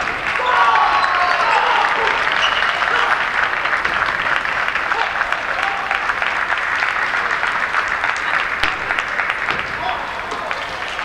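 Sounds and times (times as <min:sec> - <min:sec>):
audience applauding: 0:00.0 - 0:11.0
sharp knock: 0:08.6 - 0:09.8.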